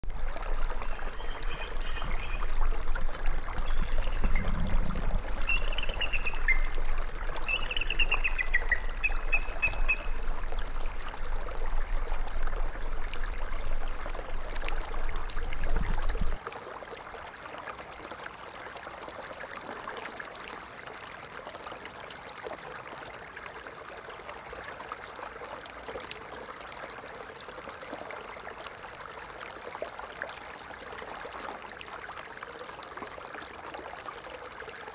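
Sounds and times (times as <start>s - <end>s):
stream flowing: 0.0s - 34.9s
bird calls: 0.8s - 2.7s, 3.6s - 11.1s
deep low rumble: 2.8s - 7.4s.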